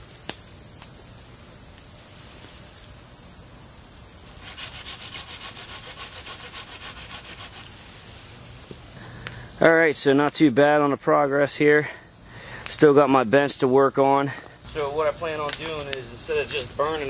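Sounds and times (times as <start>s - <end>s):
high drone of insects: 0.0s - 17.0s
hand saw cutting branch: 4.4s - 7.8s.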